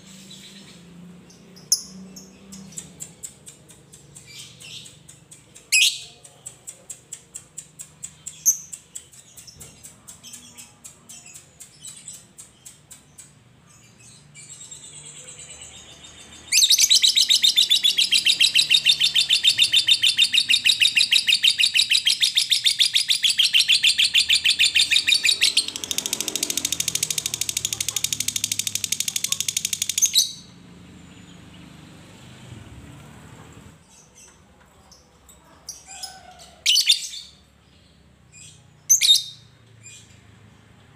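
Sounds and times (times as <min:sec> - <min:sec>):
soft ticking bird chirps: 0:01.3 - 0:13.7, 0:16.5 - 0:30.5
rapid chattering bird trill: 0:14.8 - 0:30.5.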